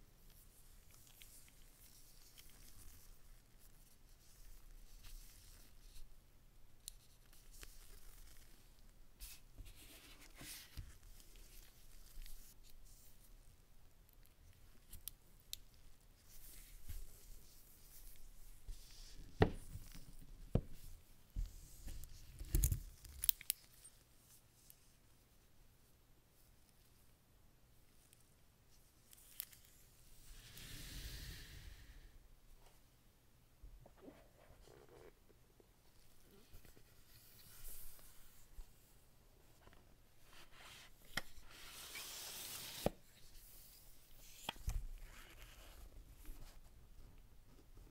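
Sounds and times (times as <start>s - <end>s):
rustles and light clicks: 0.2s - 6.1s
paper sleeve sliding over cardboard: 30.2s - 32.0s, 40.4s - 43.0s.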